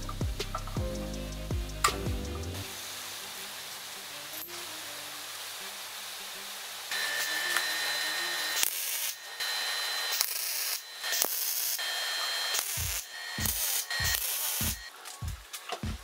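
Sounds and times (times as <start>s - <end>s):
welding arc sizzling: 0.0s - 15.7s.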